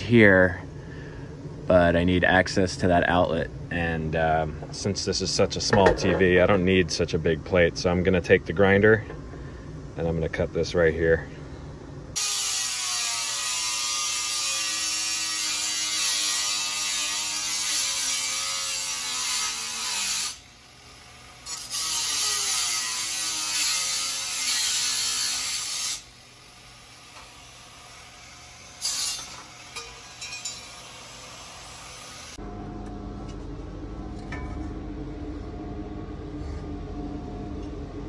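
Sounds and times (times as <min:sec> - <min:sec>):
angle grinder cutting metal: 0:12.2 - 0:20.5, 0:21.4 - 0:26.2, 0:27.0 - 0:32.4.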